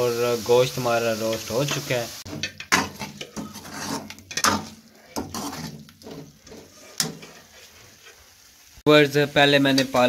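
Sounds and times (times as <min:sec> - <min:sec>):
spoon scraping metal pot: 0:02.3 - 0:08.2.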